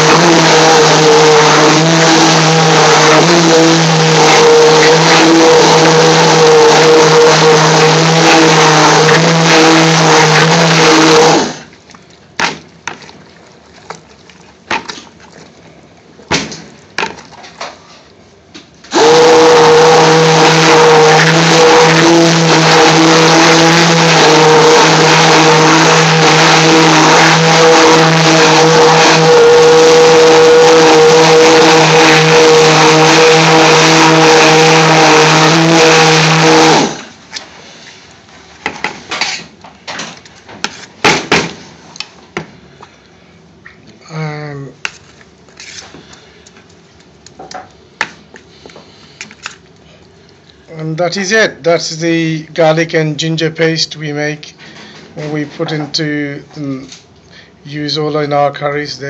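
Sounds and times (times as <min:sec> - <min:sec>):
stick blender motor running: 0:00.0 - 0:11.7, 0:18.9 - 0:37.1.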